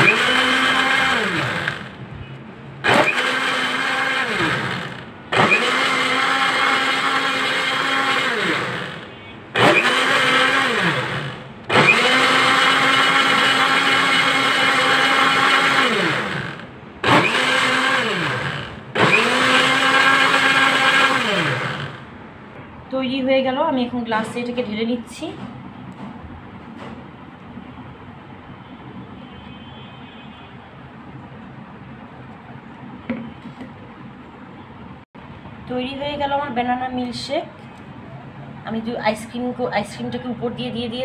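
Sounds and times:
blender motor churning ice: 0.0 - 1.9, 2.8 - 22.1.

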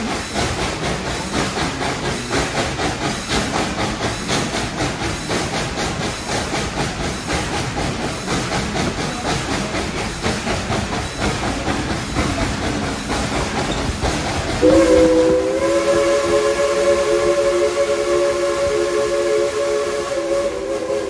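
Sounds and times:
train wheels rattling on rails: 0.0 - 21.0
steam locomotive whistle: 14.6 - 21.0.

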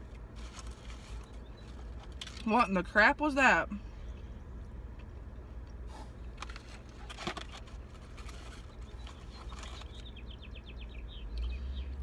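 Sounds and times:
hands handling food packaging: 0.0 - 2.6, 4.9 - 10.3
low steady hum: 0.0 - 12.0.

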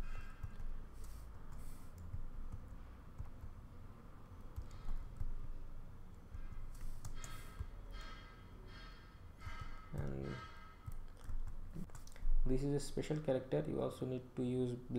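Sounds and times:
keyboard keys clicking: 4.4 - 5.4, 10.8 - 12.2.

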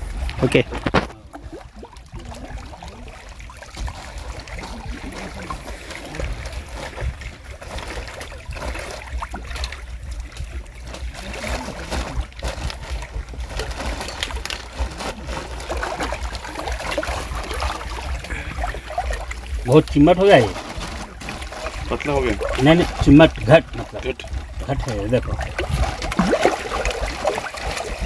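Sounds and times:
steady low rumble: 0.0 - 28.0
water trickling and splashing: 0.0 - 28.0
plastic bag crinkling: 12.4 - 23.9.

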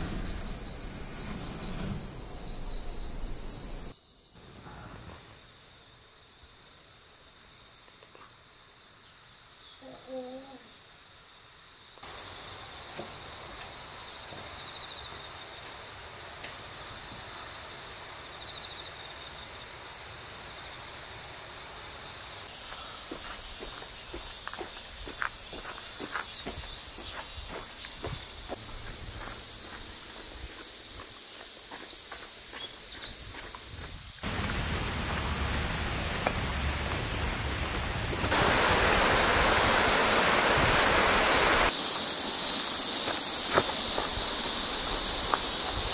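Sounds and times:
footsteps: 0.0 - 3.9, 22.7 - 38.6, 43.0 - 45.9
mountain stream rushing: 0.0 - 3.9, 34.2 - 45.9
insects chirring: 0.0 - 4.5, 5.2 - 45.9.

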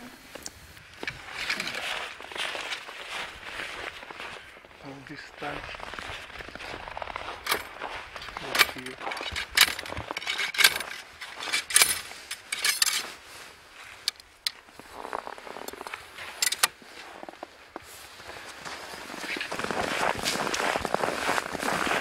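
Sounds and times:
gear rustling: 0.8 - 3.9, 5.7 - 17.5
sharp clicks and clinks: 7.4 - 13.1, 15.6 - 16.7.

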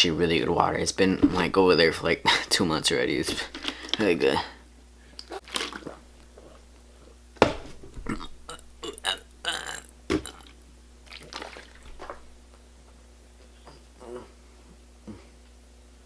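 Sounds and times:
person drinking from plastic bottle: 5.2 - 7.2, 7.9 - 12.3
person burping: 7.9 - 10.6.

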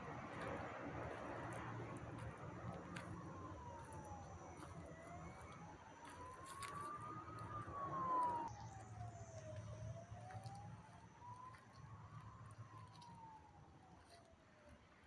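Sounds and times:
siren wailing: 3.0 - 14.2.

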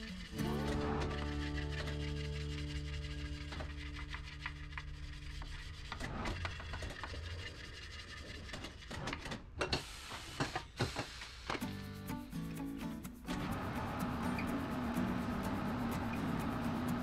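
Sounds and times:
tire rubbing and scraping on rim: 0.0 - 9.5, 13.2 - 17.0.

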